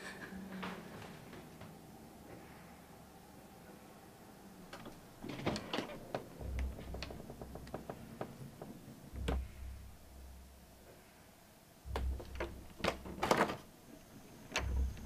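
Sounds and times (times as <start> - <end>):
light clicks and knocks: 4.7 - 11.0, 11.9 - 15.0
low thuds: 6.1 - 11.0, 11.8 - 13.7, 14.5 - 15.0.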